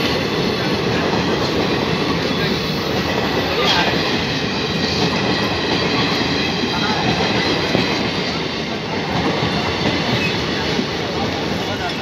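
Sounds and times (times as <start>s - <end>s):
steel wheels clattering on rails: 0.0s - 12.0s
train rolling past: 0.0s - 12.0s.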